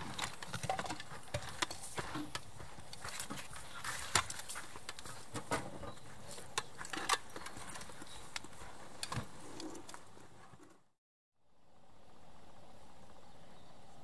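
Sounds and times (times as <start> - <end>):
field gear knocking and clinking: 0.0 - 10.1
footsteps: 0.0 - 10.8.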